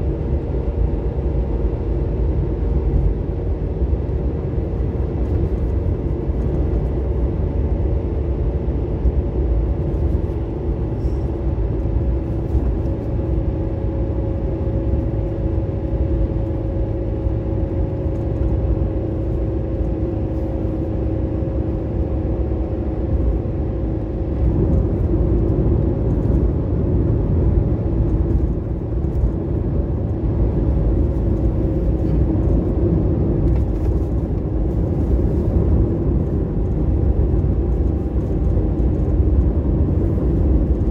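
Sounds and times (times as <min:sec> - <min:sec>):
vehicle driving rumble: 0:00.0 - 0:40.9.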